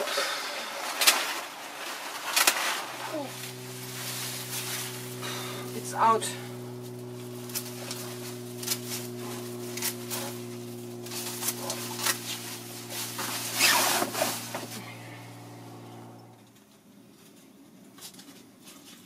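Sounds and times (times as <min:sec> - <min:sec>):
leaves and stems rustling: 0:01.0 - 0:16.2
low hum: 0:02.9 - 0:16.6.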